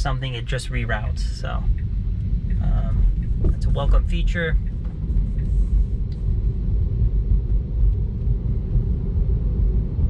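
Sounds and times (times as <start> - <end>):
tyre and road rumble in car: 0.0 - 10.0.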